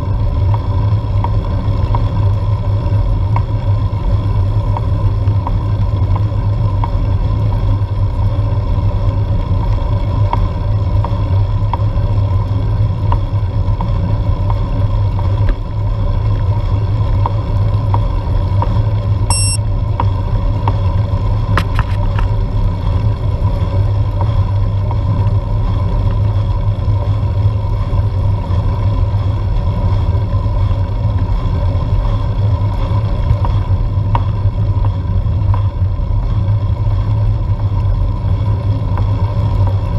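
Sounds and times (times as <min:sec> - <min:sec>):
road and wind noise rumble: 0:00.0 - 0:39.9
short high electronic beep: 0:19.3 - 0:19.6.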